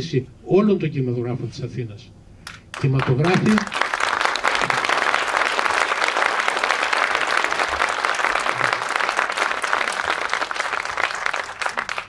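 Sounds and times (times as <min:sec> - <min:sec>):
audience applauding: 0:02.7 - 0:12.0.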